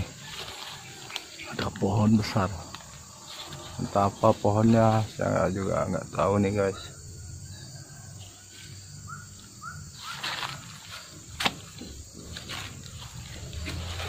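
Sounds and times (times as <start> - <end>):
footsteps in dry leaves: 0.0 - 1.6, 2.7 - 5.2, 9.9 - 14.0.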